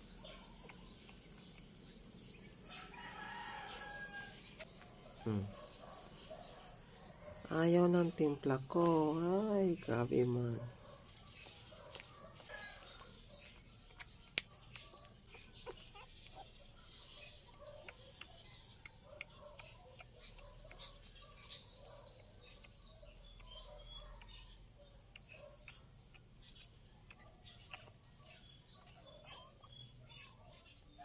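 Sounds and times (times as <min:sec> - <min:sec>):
high insect drone: 0:00.8 - 0:06.1.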